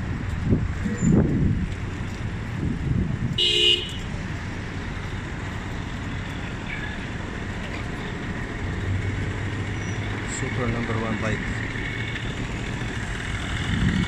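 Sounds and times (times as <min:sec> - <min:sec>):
street traffic rumble: 0:00.0 - 0:14.0
vehicle horn toot: 0:03.4 - 0:04.1.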